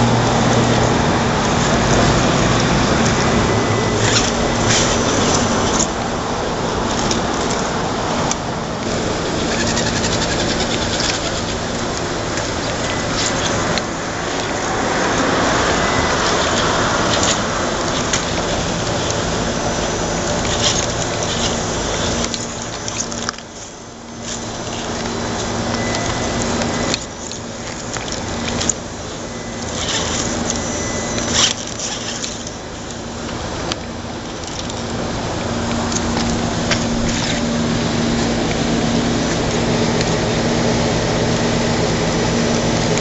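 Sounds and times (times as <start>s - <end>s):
tyres scraping on stone: 8.8s - 23.5s
toy car motor whining: 9.2s - 23.5s, 24.2s - 32.6s.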